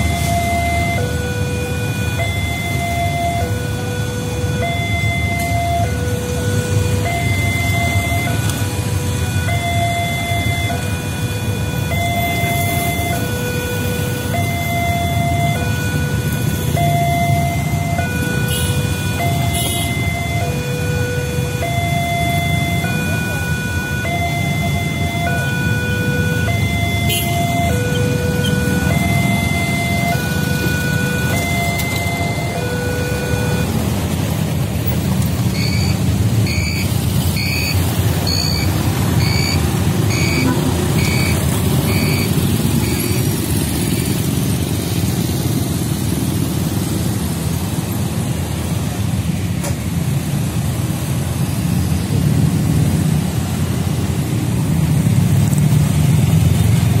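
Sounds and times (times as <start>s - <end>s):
two-tone warning alarm: 0.0s - 48.8s
motorcycle and car traffic: 0.0s - 57.0s
short high beeps: 35.5s - 43.3s.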